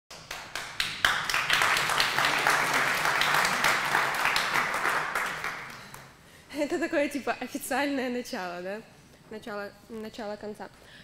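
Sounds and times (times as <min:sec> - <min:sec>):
audience applauding: 0:00.1 - 0:06.2.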